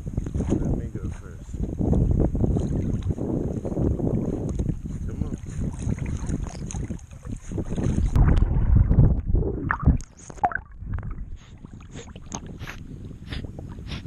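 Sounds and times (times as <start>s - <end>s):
water sloshing and splashing: 2.4s - 3.5s, 4.1s - 13.8s
small splashes and drips: 5.3s - 8.2s
water gurgling over camera: 5.8s - 14.0s.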